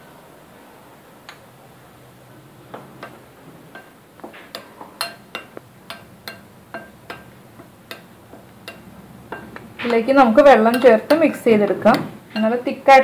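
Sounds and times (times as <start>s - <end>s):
metal spoon clinking on glass bowl: 3.0s - 12.7s.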